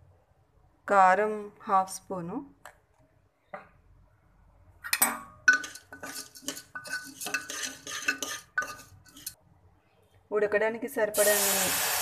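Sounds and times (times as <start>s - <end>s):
metal spoon scraping pot: 5.4s - 9.4s.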